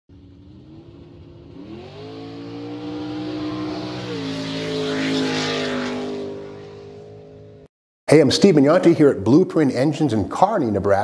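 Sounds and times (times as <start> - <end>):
car engine revving: 0.1 - 7.7.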